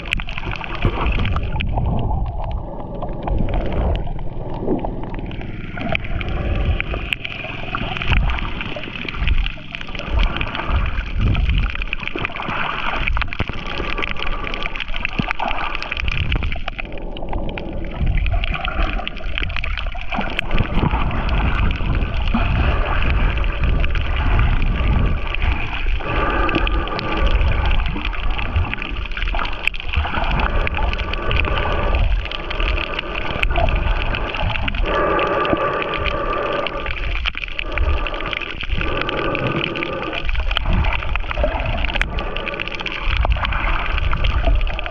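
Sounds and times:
low muffled rumble: 0.0s - 12.1s, 16.1s - 29.3s
water gurgling underwater: 0.0s - 44.9s.

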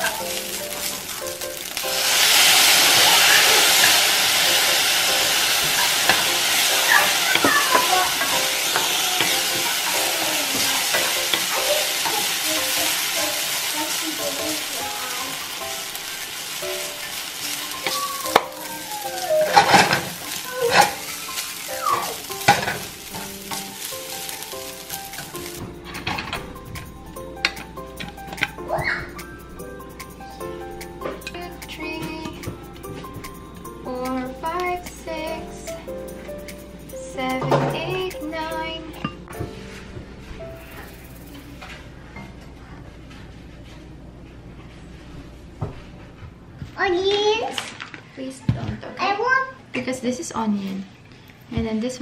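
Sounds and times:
noodles sizzling in frying pan: 0.0s - 25.6s.

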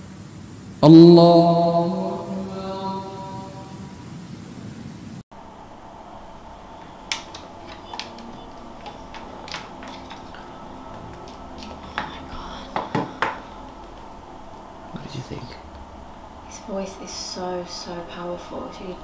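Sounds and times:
headphones clicking and knocking: 6.8s - 14.1s.

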